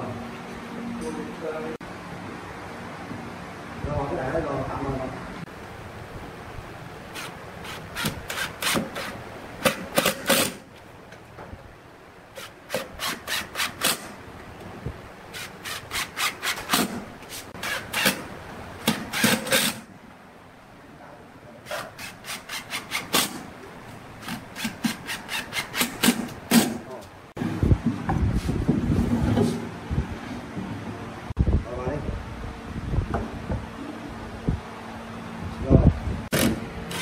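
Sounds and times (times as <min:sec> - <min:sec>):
impact driver driving screws: 0:07.2 - 0:10.6, 0:12.4 - 0:14.2, 0:15.4 - 0:17.0, 0:17.6 - 0:19.9, 0:21.7 - 0:23.5, 0:24.2 - 0:26.8, 0:36.3 - 0:37.0.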